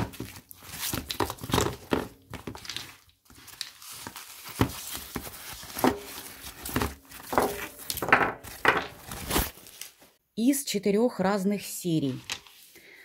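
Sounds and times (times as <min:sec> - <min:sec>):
wrapping crinkling: 0:00.0 - 0:10.2.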